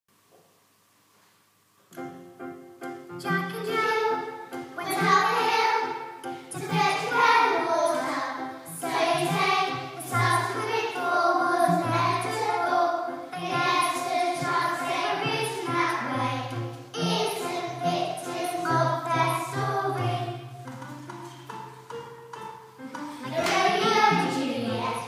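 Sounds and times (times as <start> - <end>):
children singing in unison: 3.6 - 20.5, 23.2 - 25.0.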